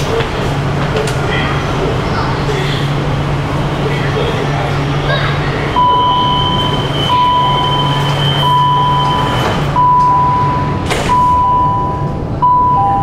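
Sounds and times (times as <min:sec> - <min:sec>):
low train hum: 0:00.0 - 0:13.0
door warning beeps: 0:05.8 - 0:13.0.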